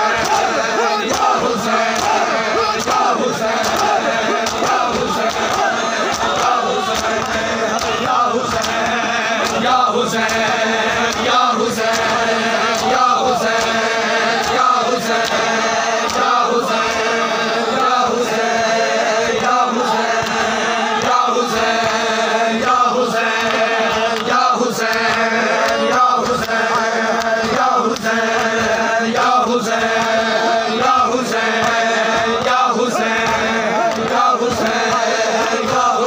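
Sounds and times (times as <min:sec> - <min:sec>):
crowd of men chanting in unison: 0:00.0 - 0:36.0
chest-beating slaps: 0:01.1 - 0:02.2, 0:02.8 - 0:09.6, 0:33.2 - 0:35.0.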